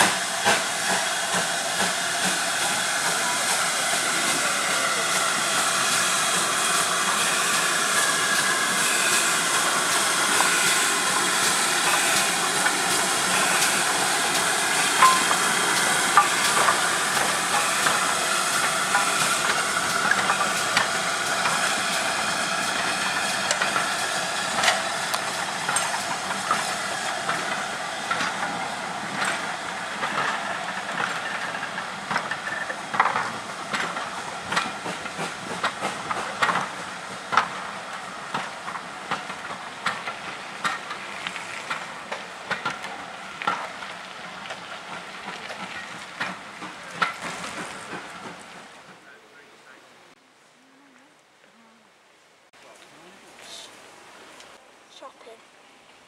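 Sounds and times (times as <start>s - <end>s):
steam hissing: 0.0s - 48.8s
wheels clicking over rail joints: 9.6s - 49.2s.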